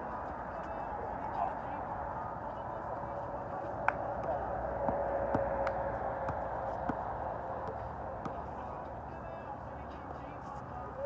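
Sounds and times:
faint voices: 0.0s - 11.0s
basketball bouncing on hard court: 4.2s - 7.0s, 7.6s - 8.5s.

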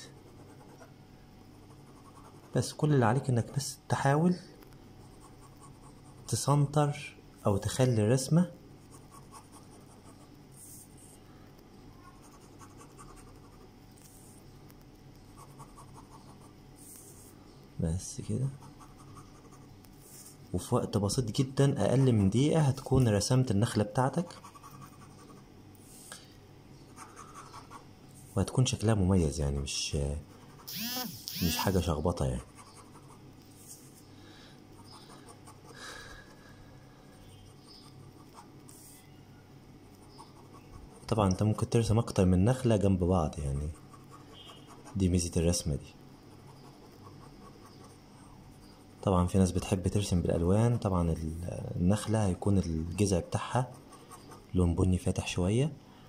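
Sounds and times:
ballpoint pen scratching paper: 0.0s - 0.9s, 1.6s - 2.6s, 12.0s - 14.2s, 15.4s - 17.0s, 24.3s - 25.4s, 32.4s - 33.2s, 43.7s - 45.1s, 46.3s - 48.0s
pen scratching on paper: 0.0s - 0.9s, 1.5s - 2.7s, 5.0s - 6.3s, 8.8s - 10.9s, 12.0s - 14.4s, 15.3s - 17.3s, 18.6s - 20.4s, 24.3s - 25.4s, 26.9s - 27.9s, 30.3s - 31.8s, 32.4s - 33.9s, 34.8s - 35.8s, 37.5s - 39.0s, 39.9s - 41.2s, 43.7s - 45.2s, 46.3s - 48.6s, 53.6s - 54.5s.

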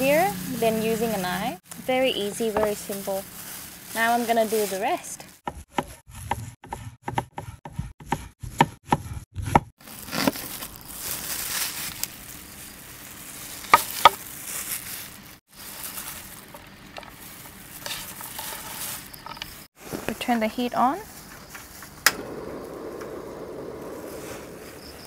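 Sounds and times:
handling and rustling: 0.0s - 5.4s, 9.8s - 25.0s
knife slicing onion on wooden board: 5.4s - 9.7s.

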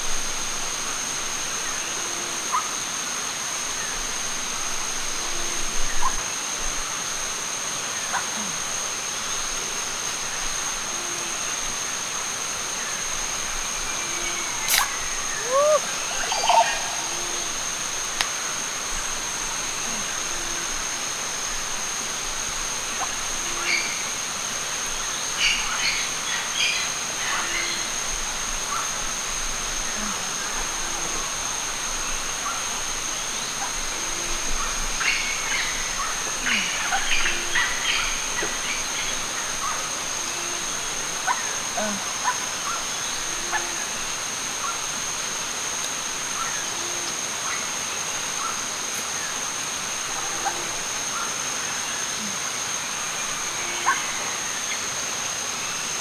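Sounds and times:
high-pitched insect drone: 8.3s - 56.0s
short low call: 14.6s - 16.0s.

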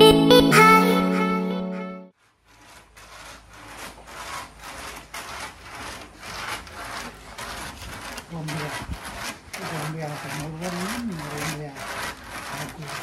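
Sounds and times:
held music chord: 0.0s - 2.1s
grater rasping palm pith: 2.2s - 13.0s.

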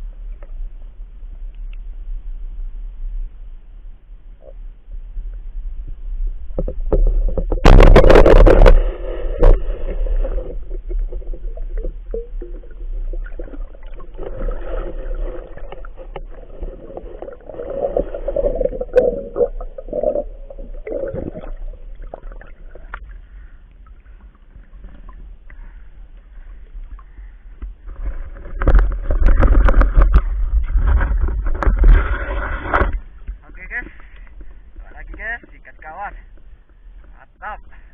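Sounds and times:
muffled underwater rumble and gurgling: 0.0s - 37.9s
underwater clicks and knocks: 6.5s - 8.8s, 9.4s - 23.1s, 27.5s - 37.2s.

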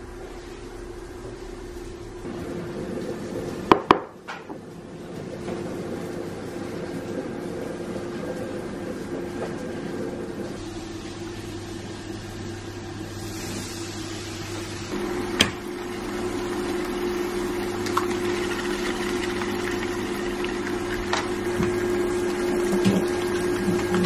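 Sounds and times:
low steady hum: 0.0s - 24.0s
food sizzling in frying pan: 13.2s - 24.0s.

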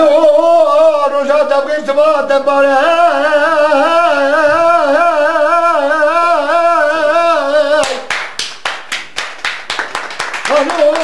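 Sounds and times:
man singing unaccompanied: 0.0s - 8.1s
hand-clapping: 7.8s - 11.0s.

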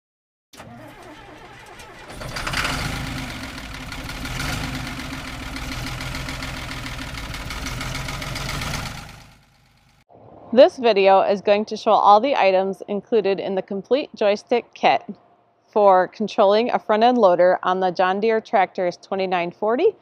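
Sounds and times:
engine starting and running: 0.6s - 10.1s.

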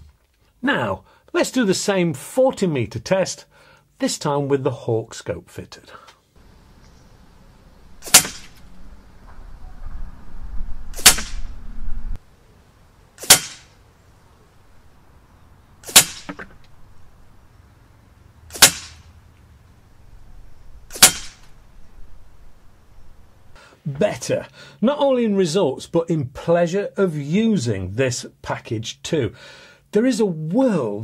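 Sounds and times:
air rifle shots: 8.0s - 8.7s, 10.9s - 11.6s, 13.2s - 13.8s, 15.8s - 16.6s, 18.5s - 19.1s, 20.9s - 21.5s.

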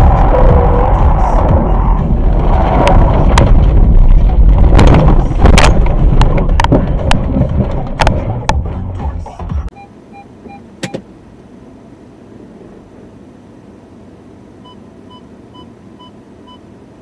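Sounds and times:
car rumbling over rough ground: 0.0s - 9.7s
sharp knocks and bangs: 2.9s - 8.6s.

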